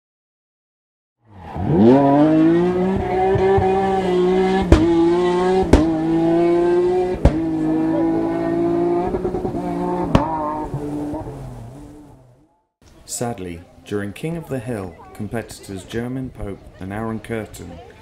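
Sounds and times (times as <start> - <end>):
race car engine revving: 1.3 - 12.4.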